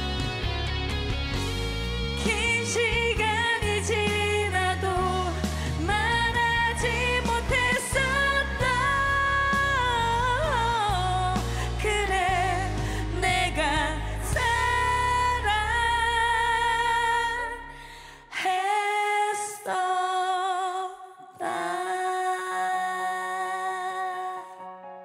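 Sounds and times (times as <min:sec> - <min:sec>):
band backing music: 0:00.0 - 0:16.4
two women singing a duet: 0:02.2 - 0:24.7.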